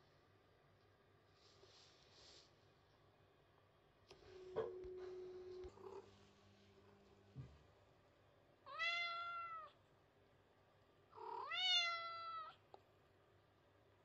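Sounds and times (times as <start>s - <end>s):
cat meowing: 8.7s - 9.8s, 11.2s - 12.6s.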